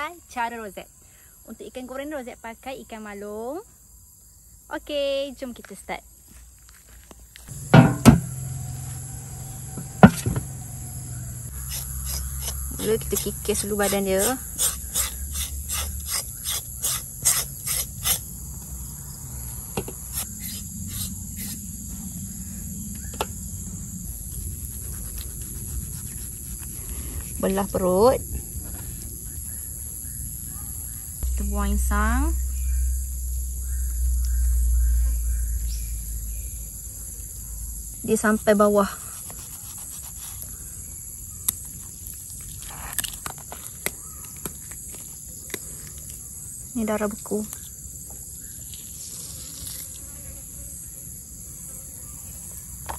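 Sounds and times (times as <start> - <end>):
crickets chirring: 0.0 - 52.9
knife scraping fish skin: 11.6 - 18.2, 39.1 - 40.6.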